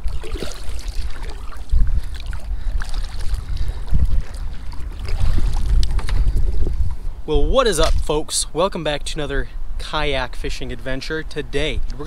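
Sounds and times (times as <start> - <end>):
paddle splashes and knocks: 0.0 - 6.2
wind buffeting microphone: 0.0 - 12.0.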